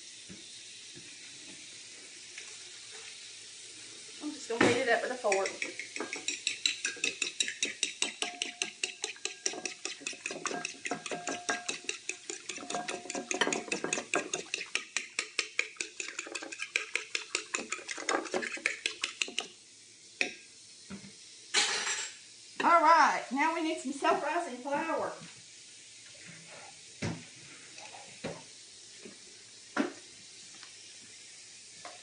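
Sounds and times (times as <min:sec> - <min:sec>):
utensil beating eggs in bowl: 0:04.6 - 0:19.6.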